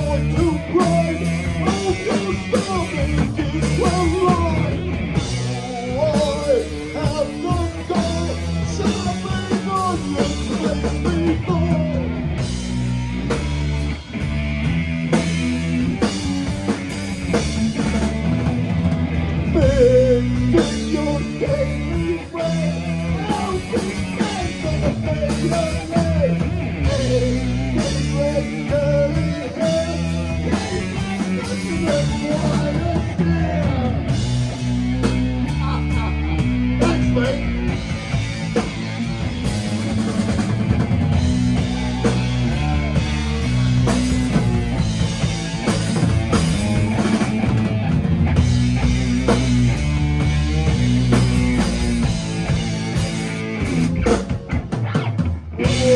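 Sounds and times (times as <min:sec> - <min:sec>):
person singing: 0:00.0 - 0:12.4, 0:19.4 - 0:38.2, 0:55.6 - 0:55.9
distorted electric guitar: 0:00.0 - 0:55.9
drum kit pounding: 0:00.0 - 0:55.9.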